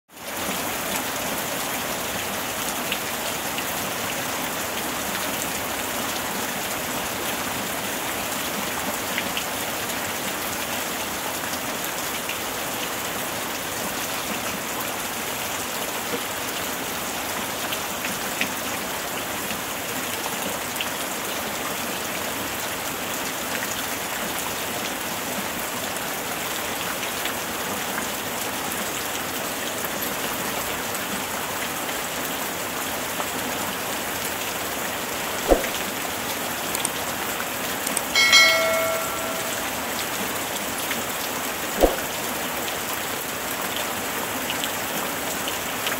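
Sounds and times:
heavy rain on a roof: 0:00.1 - 0:38.2, 0:39.6 - 0:45.9.

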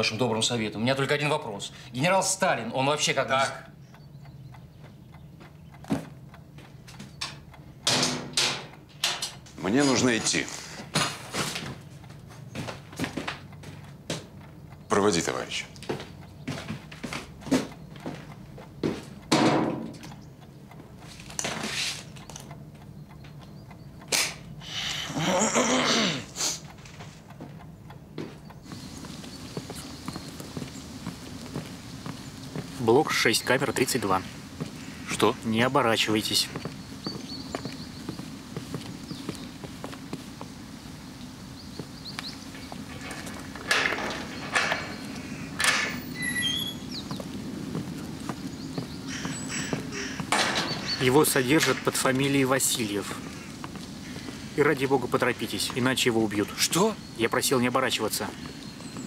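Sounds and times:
low background hum: 0:00.0 - 0:59.0
rustling scrape: 0:21.1 - 0:22.1
sharp click: 0:24.0 - 0:24.5
crow cawing: 0:48.8 - 0:51.0.

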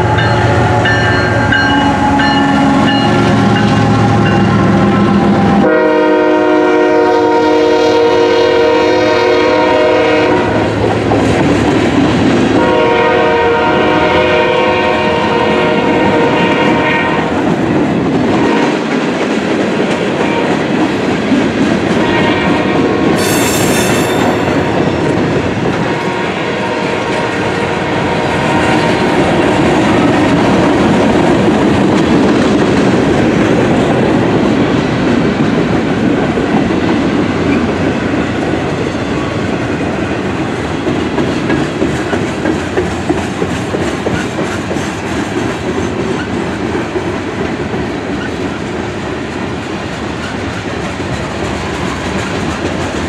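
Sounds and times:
train air horn blasts: 0:00.0 - 0:10.8, 0:12.6 - 0:17.4, 0:20.2 - 0:20.7, 0:21.9 - 0:24.8, 0:25.8 - 0:29.2
freight train rumbling on rails: 0:00.0 - 0:53.0
high squeal: 0:23.2 - 0:24.8.

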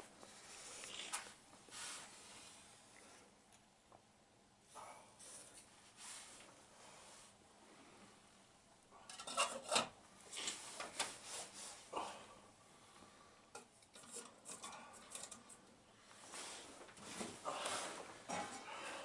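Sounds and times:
cookware scraping and rustling: 0:09.0 - 0:10.9, 0:13.9 - 0:15.6.

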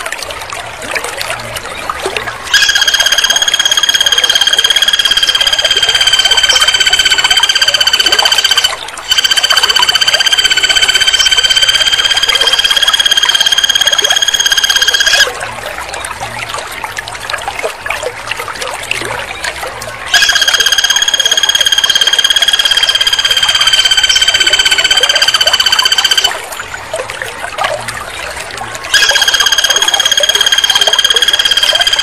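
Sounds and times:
woodpecker rattling trills: 0:02.5 - 0:15.2, 0:20.1 - 0:26.3, 0:28.9 - 0:32.0.

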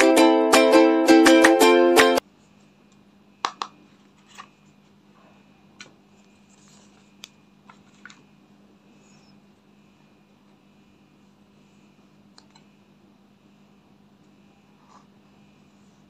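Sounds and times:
plucked-string music: 0:00.0 - 0:02.2
faint steady hum: 0:00.0 - 0:16.0.

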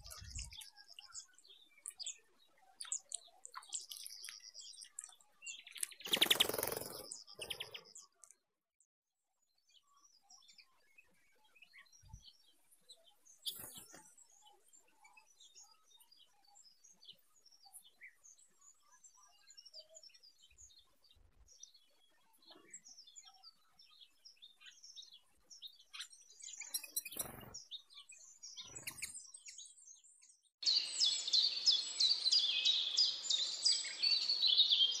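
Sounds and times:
faint songbird chirps: 0:00.0 - 0:08.5, 0:09.2 - 0:35.0
loud bird song high notes: 0:26.4 - 0:35.0.

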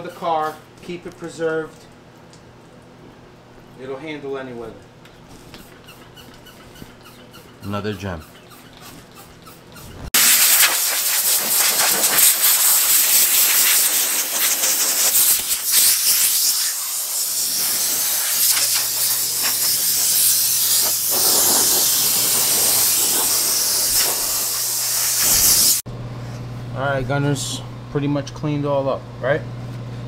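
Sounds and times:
water spraying hard hiss: 0:10.2 - 0:25.8.

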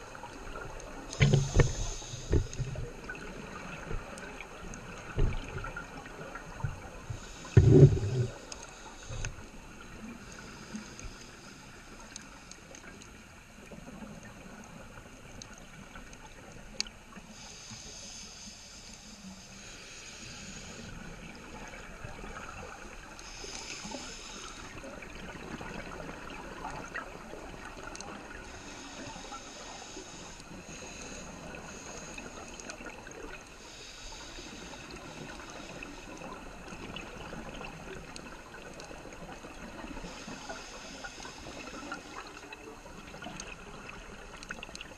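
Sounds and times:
hissing regulator inhalation: 0:01.1 - 0:03.2, 0:07.2 - 0:09.4, 0:17.3 - 0:21.0, 0:23.2 - 0:24.8, 0:28.5 - 0:32.8, 0:33.6 - 0:36.3, 0:40.0 - 0:42.4
bubbles gurgling: 0:07.5 - 0:08.4.

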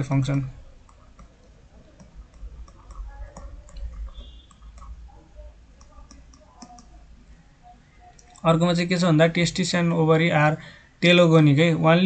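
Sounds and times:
stylus tapping on tablet screen: 0:00.2 - 0:05.0.

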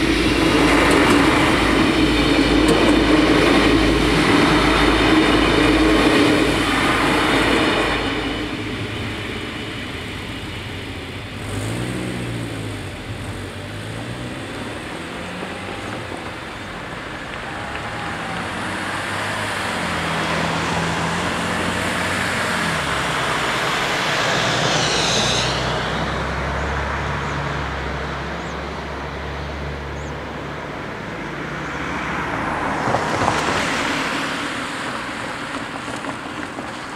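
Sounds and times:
train rumble: 0:00.0 - 0:29.3, 0:32.3 - 0:36.9
car engines pulling away: 0:00.0 - 0:36.9
car passing close: 0:11.3 - 0:30.1, 0:30.7 - 0:36.9.

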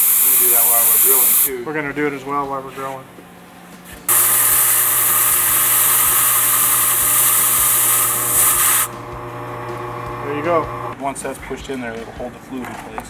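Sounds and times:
compressed air hissing: 0:00.0 - 0:01.5, 0:04.1 - 0:09.2
drill press motor humming: 0:04.1 - 0:11.0.

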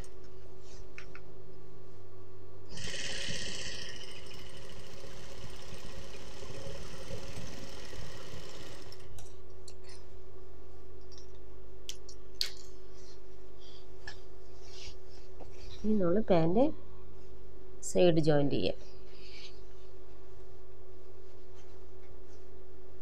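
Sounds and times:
sewing machine running: 0:02.7 - 0:09.2.

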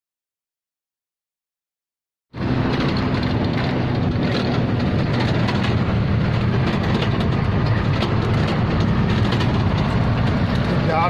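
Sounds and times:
road noise: 0:02.3 - 0:11.0
light rattling: 0:02.4 - 0:11.0
truck engine droning: 0:02.4 - 0:11.0.

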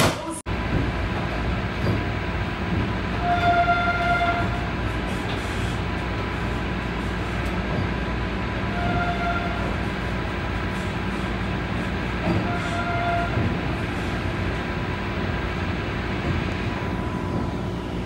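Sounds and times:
rumble inside train car: 0:00.0 - 0:18.0
train horn: 0:03.2 - 0:04.6, 0:08.7 - 0:09.8, 0:12.4 - 0:13.5.

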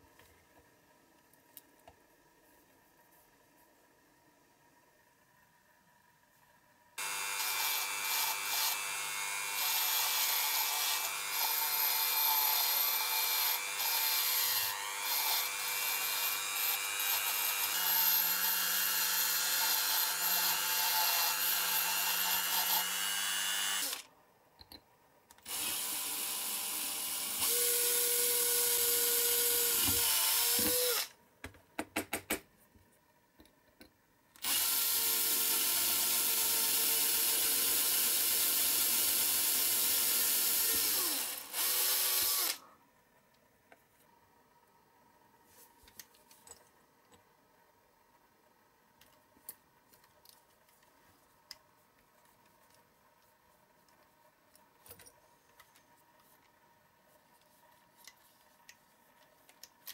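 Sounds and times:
cordless drill drilling into metal: 0:07.0 - 0:24.0, 0:25.5 - 0:31.1, 0:34.4 - 0:42.6
rotary tool whining: 0:07.0 - 0:24.1, 0:25.5 - 0:31.1, 0:34.4 - 0:42.7.

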